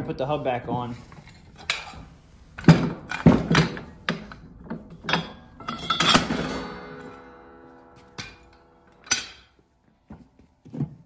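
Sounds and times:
metallic ringing: 0:05.1 - 0:09.6.

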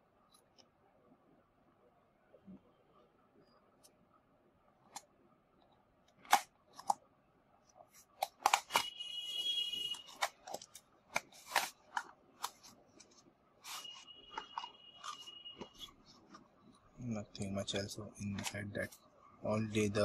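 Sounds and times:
card sliding squeaky scrape: 0:13.6 - 0:16.1.

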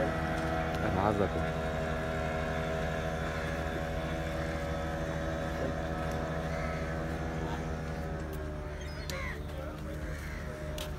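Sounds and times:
boat engine running: 0:00.0 - 0:10.9.

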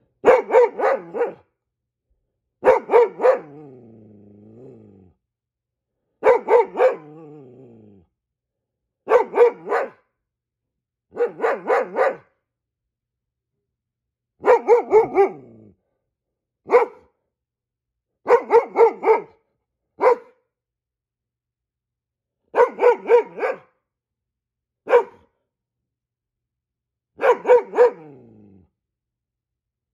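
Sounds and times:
dog barking: 0:00.2 - 0:01.5, 0:02.6 - 0:03.7, 0:06.2 - 0:07.2, 0:09.0 - 0:10.1, 0:11.1 - 0:12.4, 0:14.4 - 0:15.6, 0:16.6 - 0:17.2, 0:18.2 - 0:19.4, 0:20.0 - 0:20.5, 0:22.5 - 0:23.8, 0:24.8 - 0:25.3, 0:27.1 - 0:28.3.

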